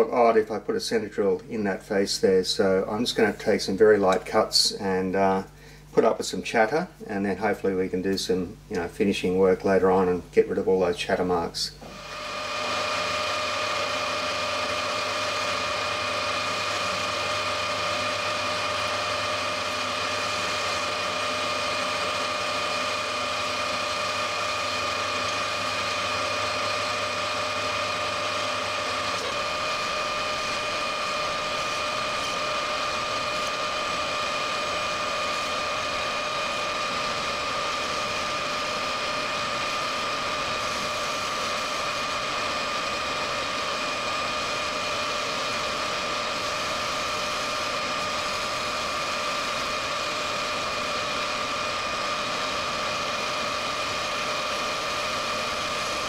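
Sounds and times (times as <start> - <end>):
metal lathe gear whine: 11.7 - 56.0
cutting tool turning steel: 11.8 - 56.0.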